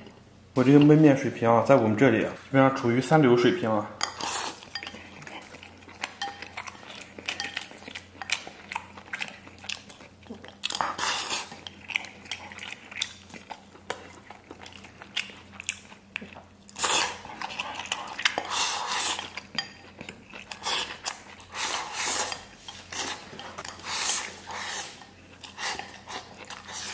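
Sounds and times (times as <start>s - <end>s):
chewing: 4.2s - 26.9s.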